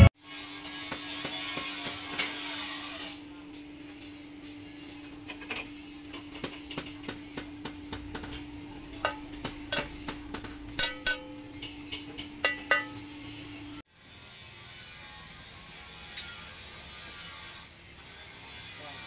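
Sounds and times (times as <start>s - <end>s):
steady low hum: 3.3s - 13.8s
steel pieces clinking: 9.0s - 13.0s.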